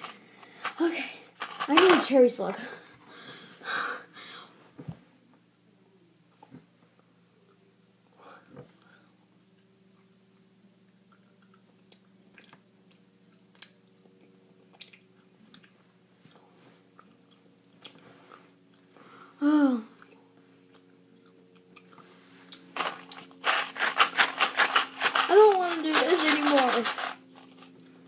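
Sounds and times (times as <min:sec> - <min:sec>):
person chewing jelly candy: 0:11.1 - 0:15.9, 0:16.9 - 0:18.0, 0:20.0 - 0:23.8.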